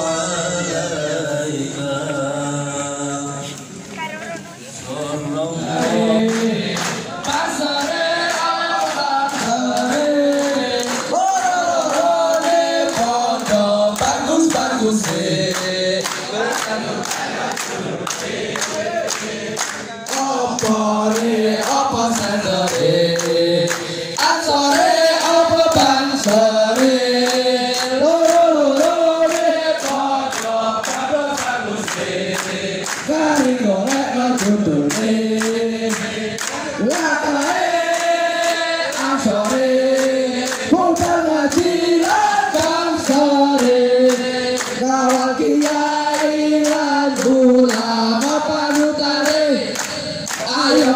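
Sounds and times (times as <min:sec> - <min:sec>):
men singing in unison: 0:00.0 - 0:03.8, 0:04.7 - 0:50.9
rhythmic hand-clapping: 0:05.0 - 0:50.9.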